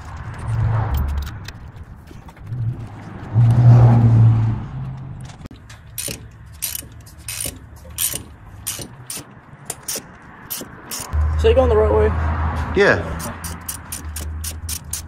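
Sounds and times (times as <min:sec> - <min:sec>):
socket ratchet clicking: 0:05.9 - 0:11.2, 0:13.2 - 0:15.0.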